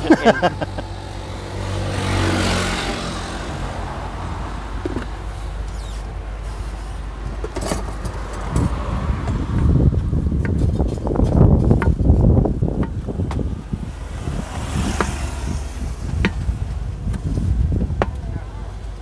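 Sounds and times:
vehicle engine passing: 0.0 - 10.4, 13.4 - 17.8
low engine hum: 0.0 - 19.0.

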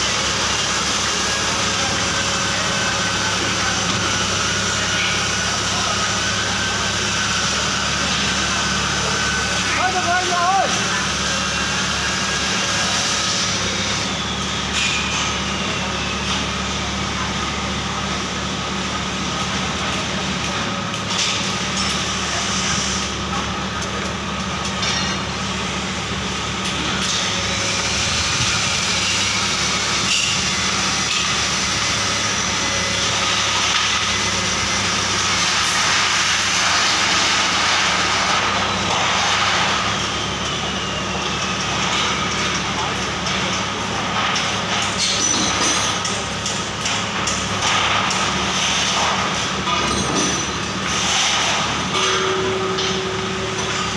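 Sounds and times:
forklift engine idling: 0.0 - 10.0.

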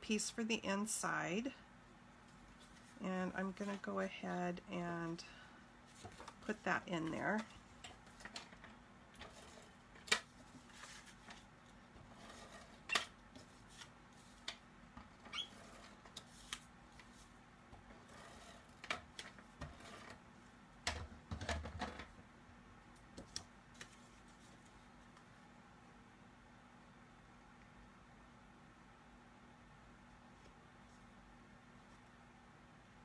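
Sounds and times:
paper tapping and rustling: 5.9 - 6.5.

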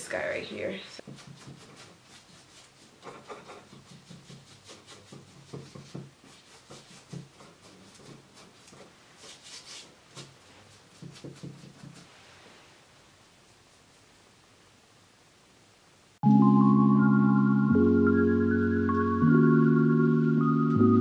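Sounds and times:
paintbrush scrubbing on canvas: 1.0 - 14.2.

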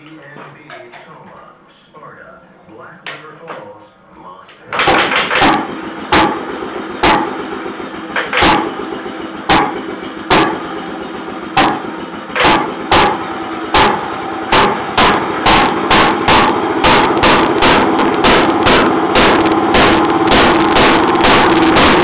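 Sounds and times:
engine firing bangs: 4.6 - 22.0
flywheel engine running: 4.6 - 22.0.

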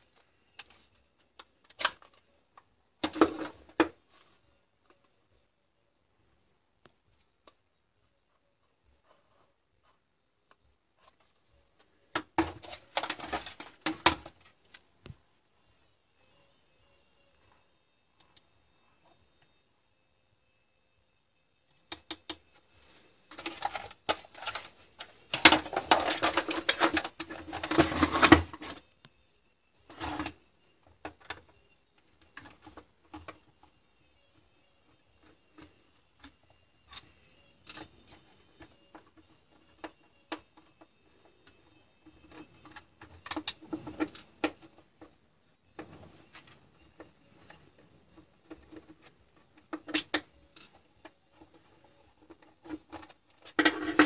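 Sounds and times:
clicks and knocks of plastic pack: 23.3 - 28.8
rattling and clattering of tools: 23.3 - 28.8.

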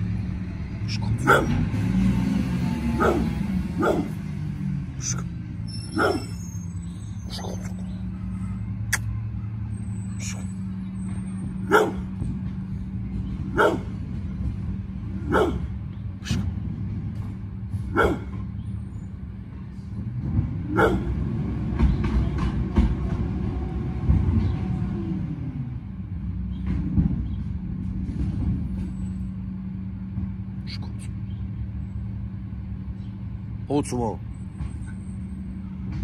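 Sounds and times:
truck diesel engine rumbling: 0.0 - 36.0
dog barking: 1.2 - 1.6, 3.0 - 4.2, 5.9 - 6.4, 11.6 - 12.1, 13.5 - 14.0, 15.2 - 15.7, 17.9 - 18.4, 20.7 - 21.2.

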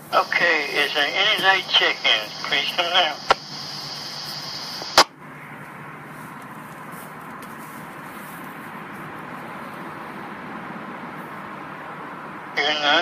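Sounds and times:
radio static burst: 0.0 - 5.1, 12.6 - 13.0
steady radio background noise: 0.0 - 10.5, 11.1 - 13.0.

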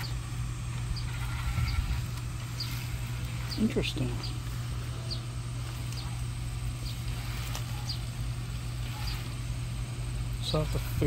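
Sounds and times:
robot lawn mower motor humming: 0.0 - 11.0.

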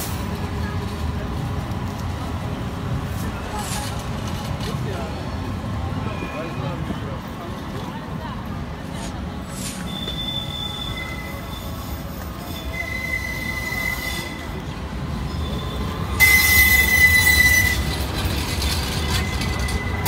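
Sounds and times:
tram wheels squealing: 3.1 - 7.4, 8.8 - 20.0.

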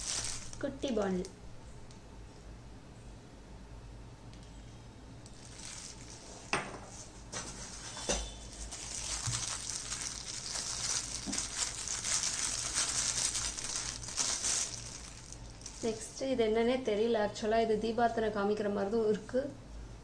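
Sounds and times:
plastic wrapping crinkling: 0.0 - 1.3, 5.2 - 16.1.

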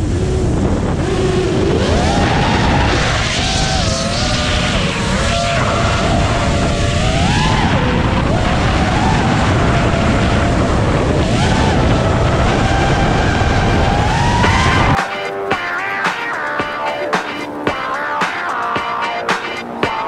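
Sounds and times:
wind rumble on microphone: 0.0 - 15.0
drone motors whining: 0.0 - 20.0
music: 14.4 - 20.0.

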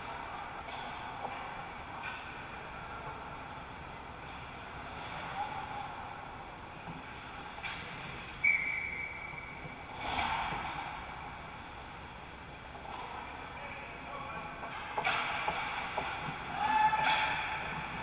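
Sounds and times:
rink background hum: 0.0 - 18.0
referee's whistle: 8.4 - 9.5.

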